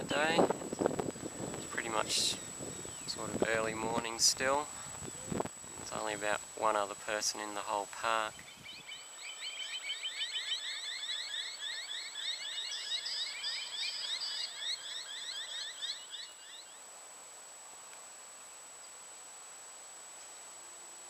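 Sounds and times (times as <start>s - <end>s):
faint steady hiss: 0.0s - 21.0s
birds chattering: 0.4s - 16.8s.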